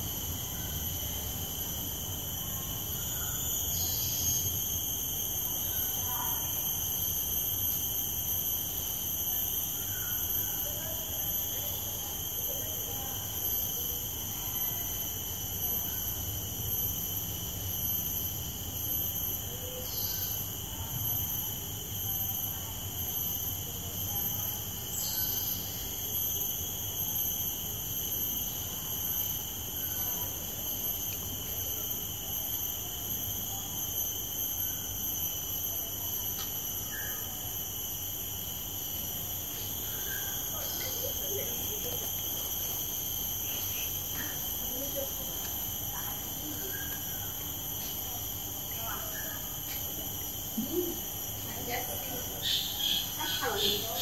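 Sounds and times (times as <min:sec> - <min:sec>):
insect chorus: 0:00.0 - 0:54.0.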